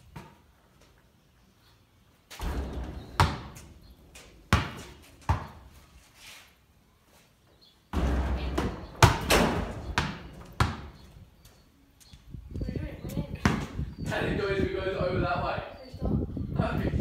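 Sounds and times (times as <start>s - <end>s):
basketball hitting backboard and rim: 2.3s - 5.6s, 7.9s - 11.0s
basketball bouncing on floor: 4.5s - 5.6s, 8.0s - 11.0s.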